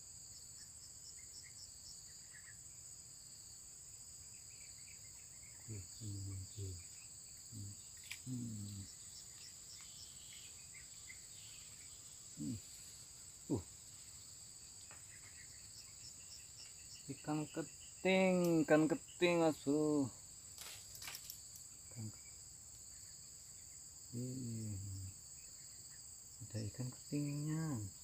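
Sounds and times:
insect chorus: 0.0 - 28.0
short low voice-like sounds: 7.6 - 8.9, 12.4 - 12.6, 24.2 - 25.1.

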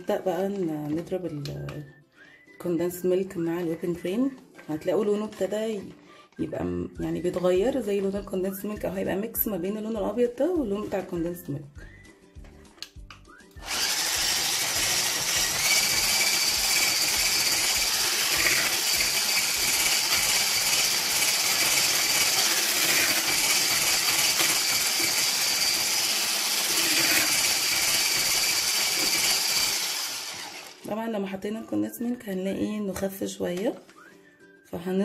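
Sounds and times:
electric mixer whining: 13.6 - 30.9.

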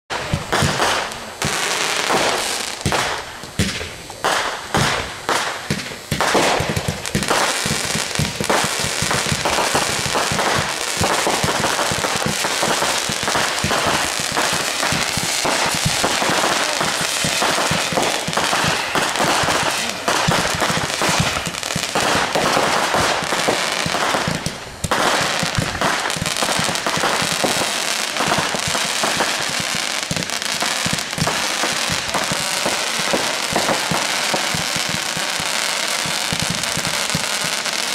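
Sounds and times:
fireworks crackling: 0.1 - 37.9
fireworks launching and banging: 0.1 - 37.9.

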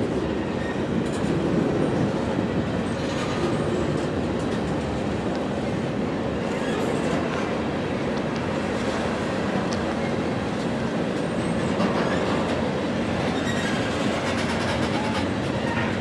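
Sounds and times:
freight train wheels rumbling: 0.0 - 16.0
faint wheel squeals: 13.3 - 14.0.

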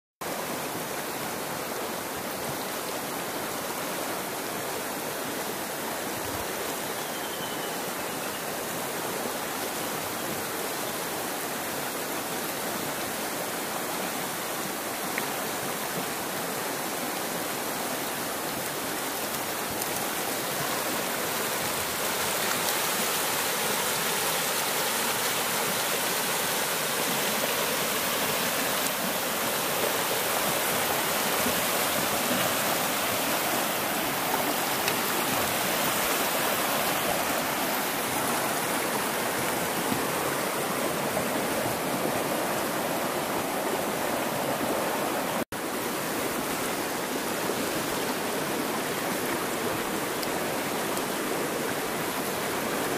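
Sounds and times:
stream rushing over rocks: 0.2 - 52.9.

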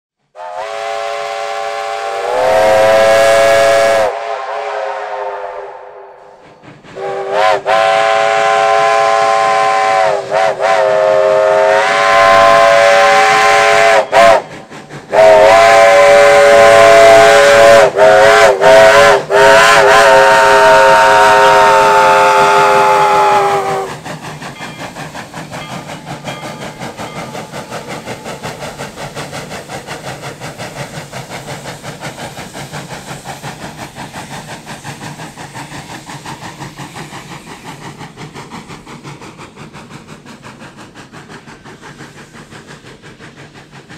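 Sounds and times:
steam locomotive whistle blasts: 0.3 - 24.0
steam hissing with regular beat: 0.4 - 43.9.

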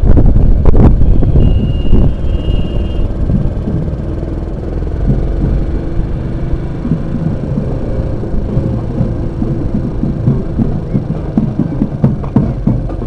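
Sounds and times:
motorcycle engine rumbling: 0.0 - 13.0.

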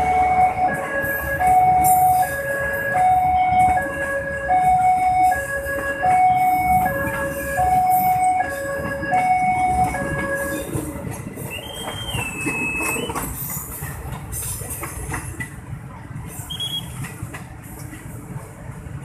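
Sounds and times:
two-tone crossing alarm: 0.0 - 13.3
train rumble and wheel clatter: 0.0 - 19.0
high wheel squeal: 11.5 - 13.4.

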